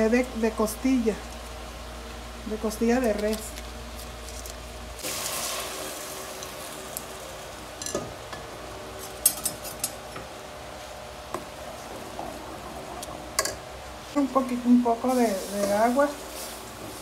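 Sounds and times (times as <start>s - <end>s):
sauce sizzling in hot pot: 5.0s - 7.8s.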